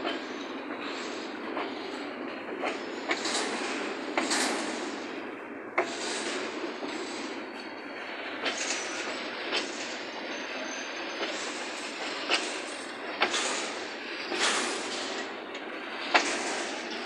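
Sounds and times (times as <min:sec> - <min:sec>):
clacks at rail joints: 0:00.0 - 0:17.0
steel wheels rolling on rails: 0:00.0 - 0:17.0
high wheel squeal: 0:10.1 - 0:11.8.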